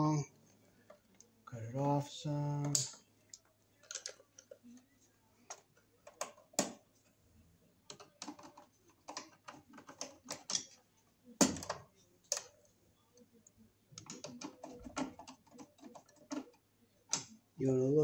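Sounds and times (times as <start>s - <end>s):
tools and wire tapping metal: 7.9s - 10.8s.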